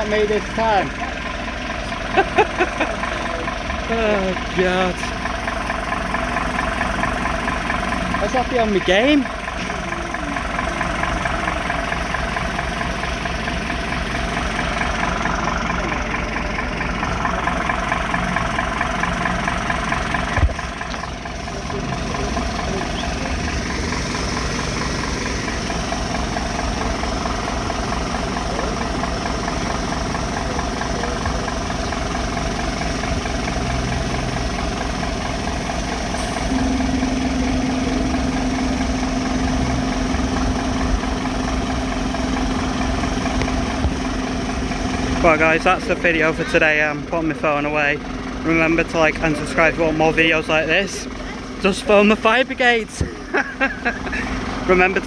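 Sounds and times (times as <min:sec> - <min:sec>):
vehicle engine idling: 0:00.0 - 0:55.0
steady low hum: 0:34.9 - 0:42.3.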